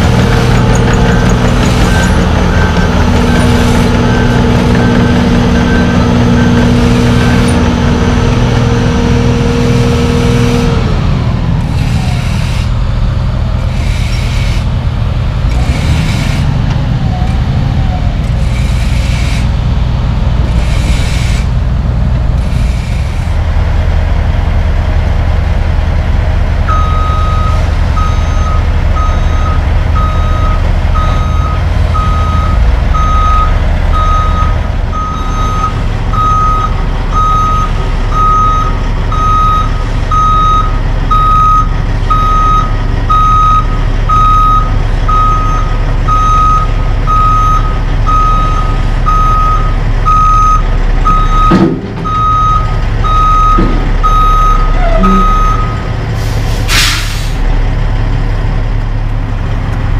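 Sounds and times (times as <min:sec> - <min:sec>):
diesel truck engine running: 0:00.0 - 0:59.9
reversing alarm beeping: 0:00.5 - 0:07.6, 0:26.7 - 0:55.9.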